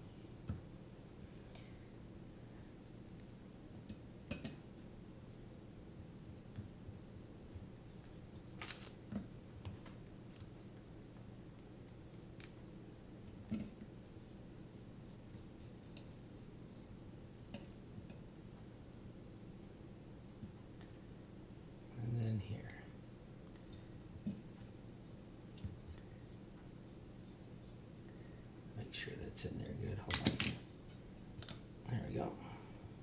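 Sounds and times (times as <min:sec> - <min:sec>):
low steady hum: 0:00.0 - 0:33.0
light clicks and taps of plates: 0:02.8 - 0:04.6.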